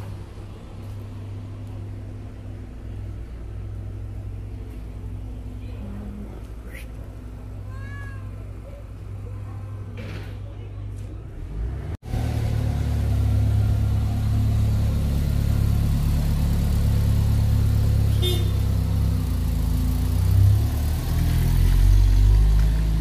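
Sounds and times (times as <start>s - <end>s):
car engine running: 11.6s - 23.0s.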